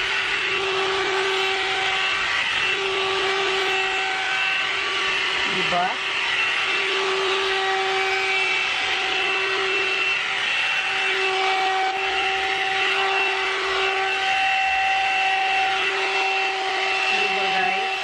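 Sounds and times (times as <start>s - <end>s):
hair dryer motor whine: 0.0s - 18.0s.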